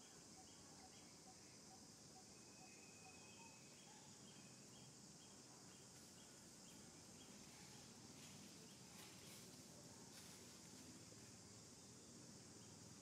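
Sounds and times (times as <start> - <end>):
high-pitched insect drone: 0.0 - 6.3
small bird chirping: 0.0 - 9.6.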